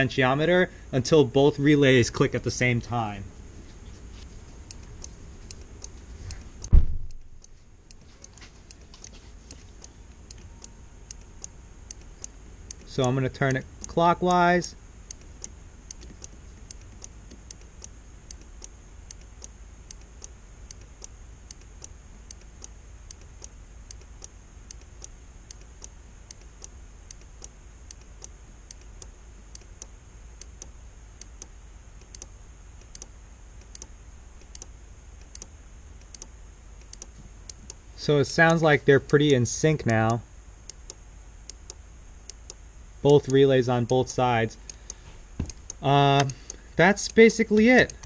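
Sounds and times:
relays clicking: 42.3s - 48.0s.

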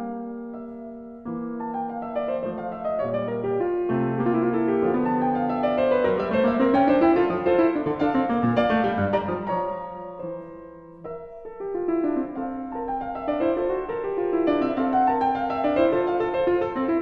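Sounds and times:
slow piano melody: 0.0s - 17.0s.

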